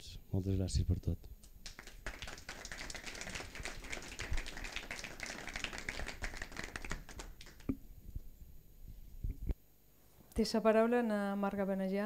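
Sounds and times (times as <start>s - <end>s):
audience applauding: 1.6s - 7.7s.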